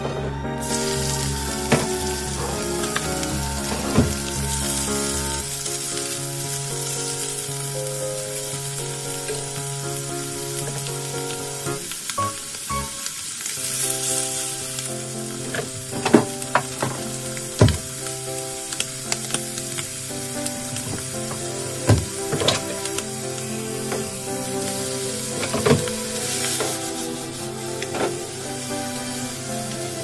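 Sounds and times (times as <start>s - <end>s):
background music: 0.0s - 30.0s
squid sizzling in oil: 0.6s - 30.0s.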